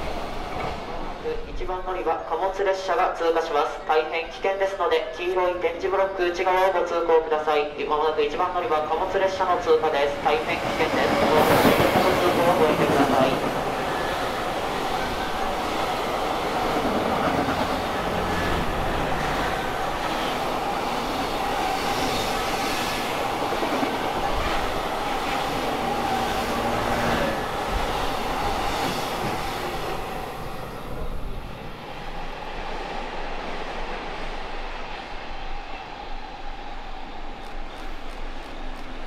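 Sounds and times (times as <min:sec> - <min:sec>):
freight train passing: 0:00.0 - 0:39.0.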